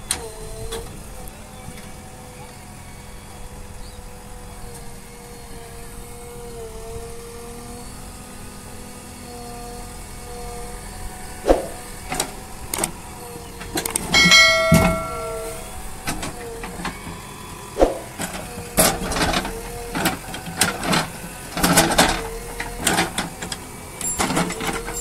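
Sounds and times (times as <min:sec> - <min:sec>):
diesel engine and hydraulics: 0:00.0 - 0:25.0
bucket clanks and knocks: 0:14.1 - 0:16.3
brief pitched ringing: 0:14.2 - 0:16.0.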